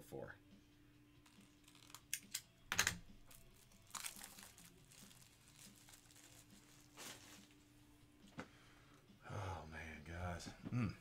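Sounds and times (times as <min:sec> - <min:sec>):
crinkling rustles: 0:03.3 - 0:07.7.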